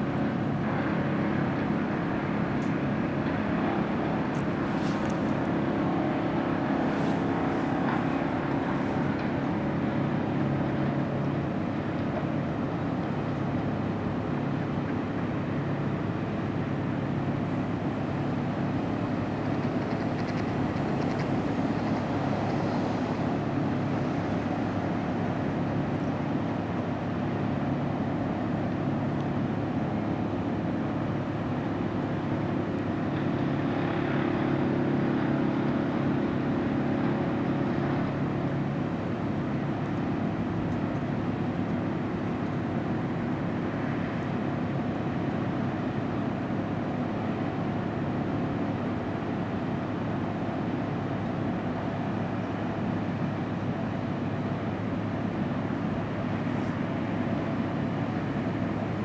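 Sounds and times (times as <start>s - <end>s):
distant engine drone: 0.0s - 59.0s.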